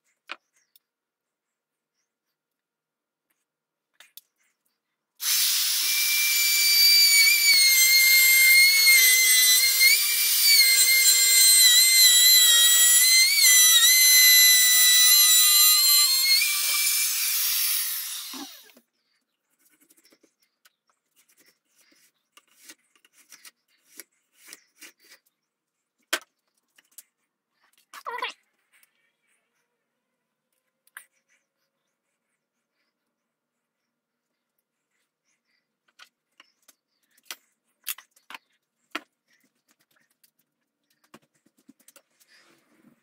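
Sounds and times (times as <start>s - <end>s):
electric router whine: 5.2s - 18.8s.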